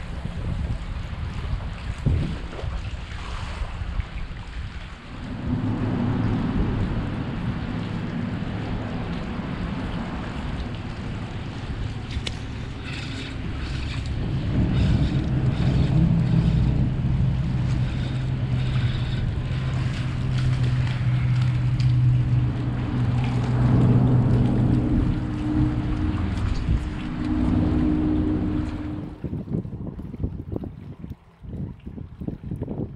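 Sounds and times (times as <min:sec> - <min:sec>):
water lapping at rocks: 0:00.0 - 0:32.9
wind on microphone: 0:00.0 - 0:32.9
low engine drone: 0:04.9 - 0:29.6.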